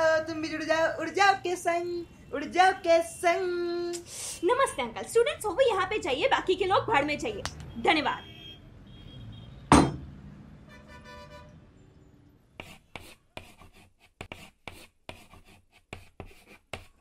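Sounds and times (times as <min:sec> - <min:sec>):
chalk scratching on blackboard: 0:12.6 - 0:17.0.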